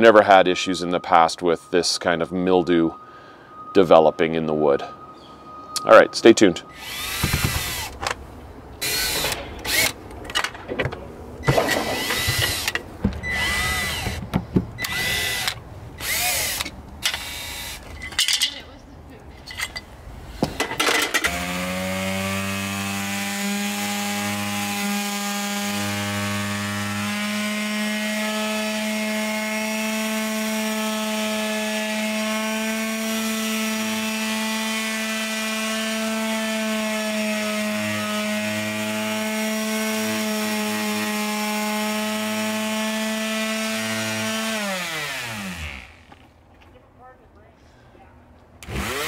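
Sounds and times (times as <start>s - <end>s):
sheet sander running on wood: 21.3s - 46.2s.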